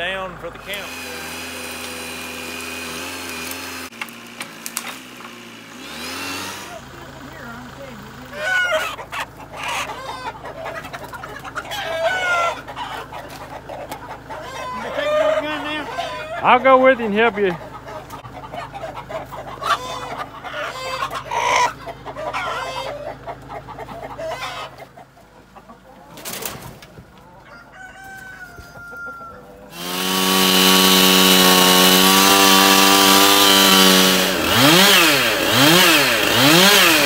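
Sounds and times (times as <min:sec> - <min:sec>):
chainsaw running and revving: 0:00.0 - 0:09.1, 0:29.7 - 0:37.0
hens clucking and squawking: 0:06.0 - 0:37.0
wings flapping: 0:26.1 - 0:27.0.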